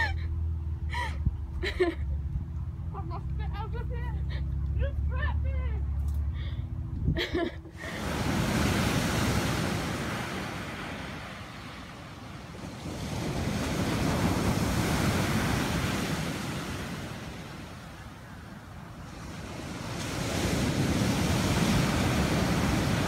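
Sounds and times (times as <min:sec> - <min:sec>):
ocean surf breaking on beach: 0:07.8 - 0:23.0.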